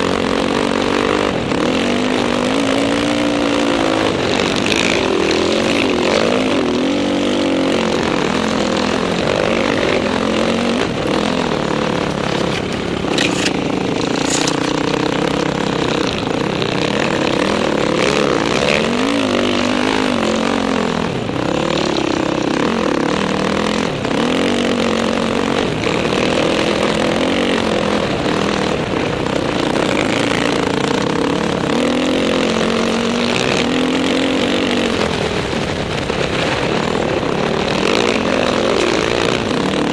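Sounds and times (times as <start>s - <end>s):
dirt bike engine revving: 0.0s - 39.9s
wind rushing on camera: 0.0s - 39.9s.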